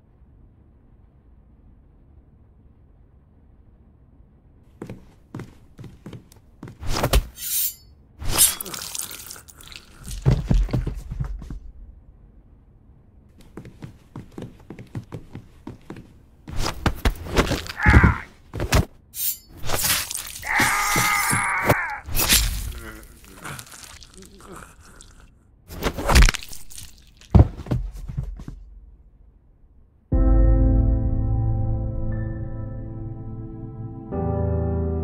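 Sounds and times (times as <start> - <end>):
thuds and crashing impacts: 25.7 - 29.0.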